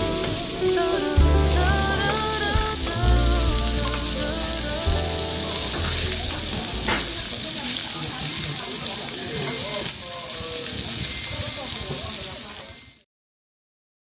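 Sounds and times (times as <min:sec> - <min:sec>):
background music: 0:00.0 - 0:07.2
food sizzling: 0:00.0 - 0:13.0.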